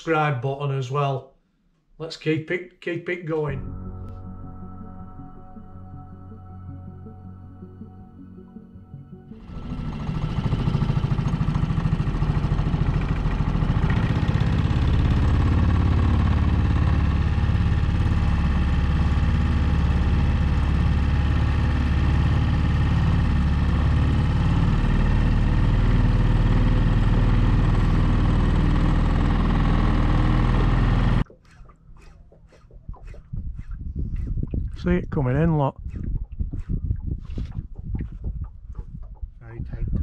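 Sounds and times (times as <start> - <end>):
outboard motor running: 9.0 - 40.0.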